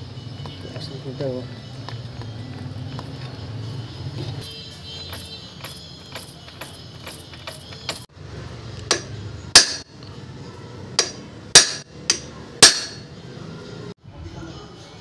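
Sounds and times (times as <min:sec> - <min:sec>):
hammer striking steel punch: 0:08.9 - 0:09.9, 0:11.0 - 0:13.1.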